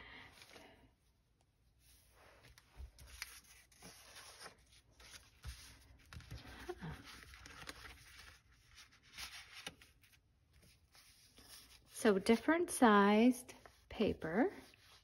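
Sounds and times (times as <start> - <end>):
paper rustling: 1.8 - 12.5.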